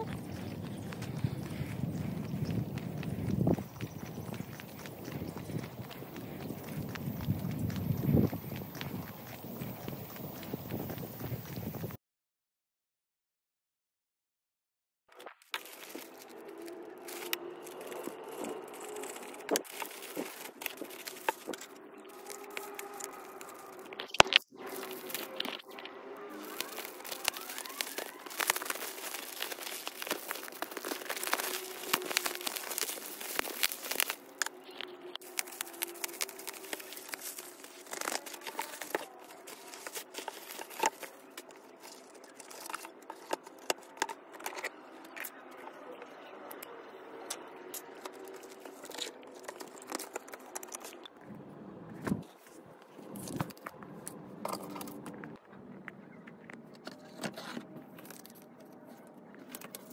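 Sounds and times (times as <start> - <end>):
handling noises: 15.1 - 45.4, 47.4 - 59.9
plastic wrap crinkling and tearing: 15.4 - 44.7, 48.0 - 51.0, 56.8 - 59.9.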